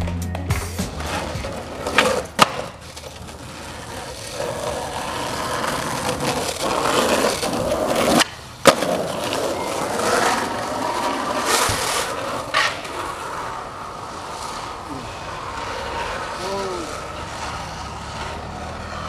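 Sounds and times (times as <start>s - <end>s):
skateboard clacks: 0.0s - 19.0s
skateboard smacking: 0.0s - 19.0s
skateboard wheels rolling on asphalt: 0.0s - 19.0s.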